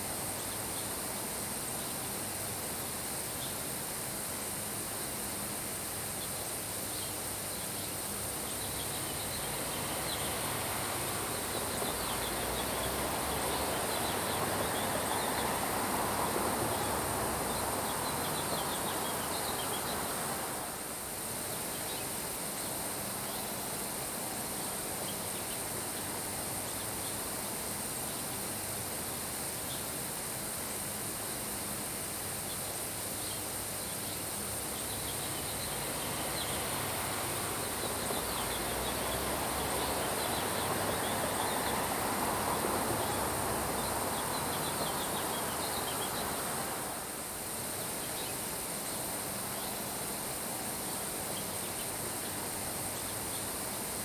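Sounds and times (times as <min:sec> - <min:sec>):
rain hissing on grass: 0:00.0 - 0:54.0
wind: 0:00.0 - 0:54.0.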